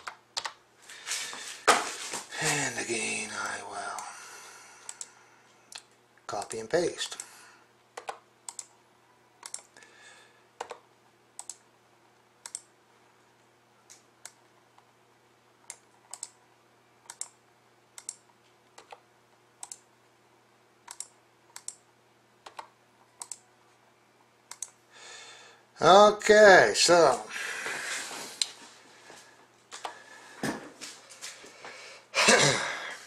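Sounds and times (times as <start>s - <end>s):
computer mouse and keyboard clicks: 0.0s - 0.6s, 8.0s - 8.8s, 9.4s - 9.7s, 10.6s - 10.8s, 12.4s - 12.7s, 15.7s - 16.4s, 17.1s - 17.4s, 18.0s - 19.0s, 19.6s - 19.9s, 20.9s - 21.8s, 22.4s - 23.4s.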